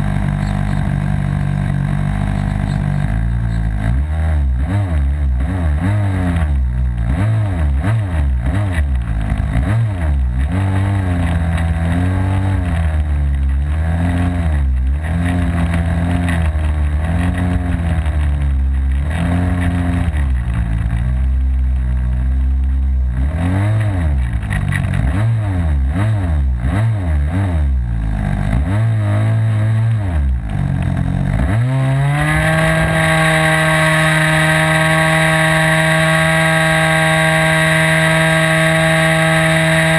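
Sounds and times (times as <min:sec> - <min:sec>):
model aircraft engine revving: 0:30.7 - 0:39.9.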